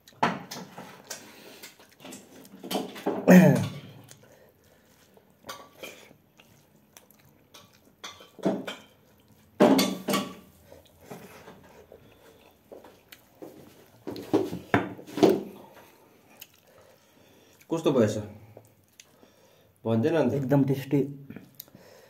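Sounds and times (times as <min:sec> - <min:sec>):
plates clinking and scraping: 0:09.6 - 0:10.5.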